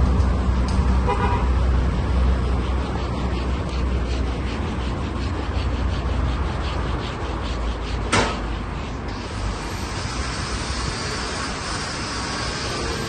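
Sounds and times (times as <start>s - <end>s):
low traffic rumble: 0.0s - 13.0s
sandpaper rubbing on plastic: 1.5s - 13.0s
sharp knock: 8.1s - 8.5s.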